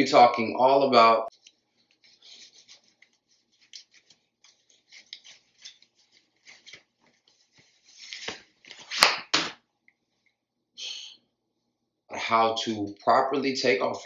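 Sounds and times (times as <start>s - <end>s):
necktie fabric rustling: 1.3s - 9.2s.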